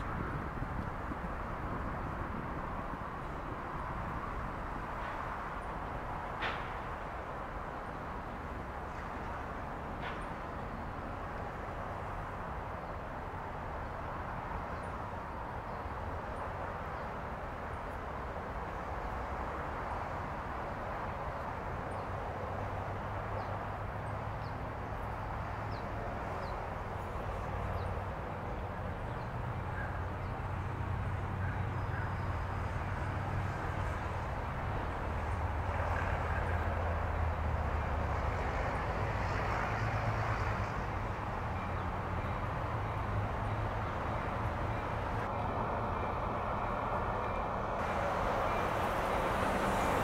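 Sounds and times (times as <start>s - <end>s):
diesel locomotive engine rumble: 0.0s - 50.0s.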